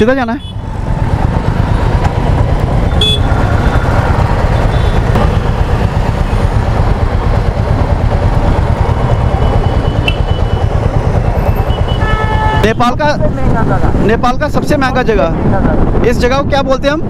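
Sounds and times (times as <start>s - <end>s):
motorcycle engine rumble: 0.0s - 16.0s
wind buffeting microphone: 0.6s - 17.0s
horn toot: 2.9s - 3.8s.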